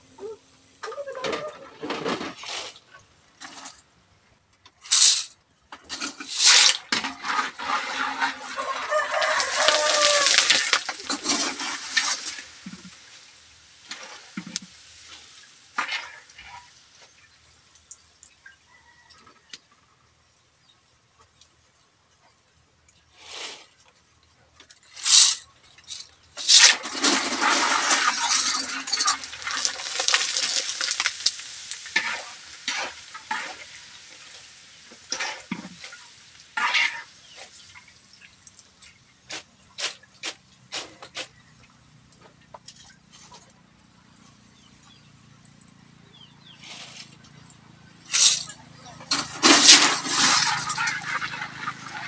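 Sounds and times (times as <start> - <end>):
food sizzling in hot oil: 4.8 - 5.3, 5.9 - 17.1, 24.9 - 38.6, 49.1 - 52.0.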